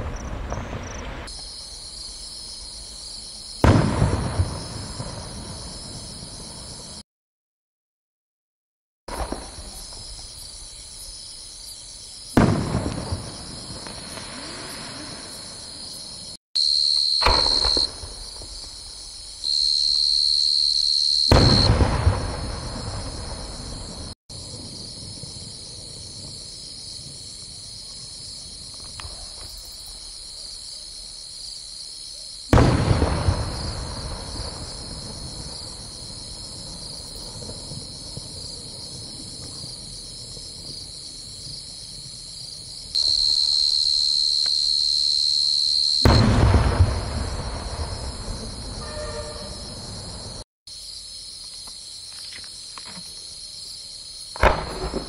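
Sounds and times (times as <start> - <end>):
firework shells booming: 3.6 - 6.8, 9.1 - 10.6, 12.3 - 15.9, 17.2 - 19.1, 21.3 - 25.3, 32.5 - 39.6, 46.0 - 50.3, 54.3 - 55.0.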